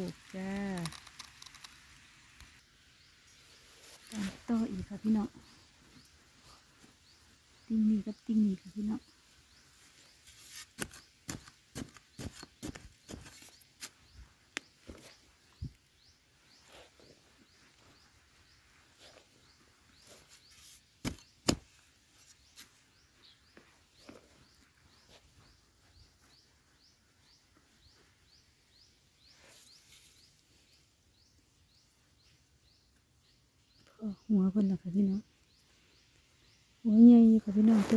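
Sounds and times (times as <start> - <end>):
metal blade chopping sandy soil: 10.4 - 14.0, 20.5 - 21.7.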